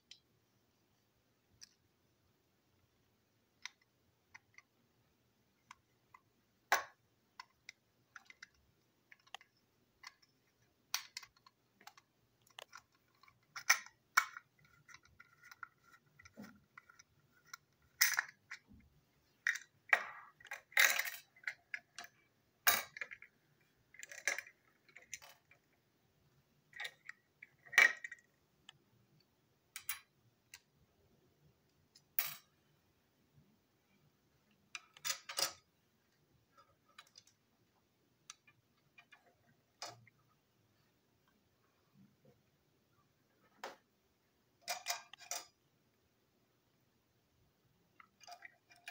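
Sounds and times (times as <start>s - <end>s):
plastic toy parts clicking: 5.7s - 18.7s, 19.4s - 23.3s, 23.9s - 25.7s, 34.7s - 35.7s, 44.6s - 45.6s.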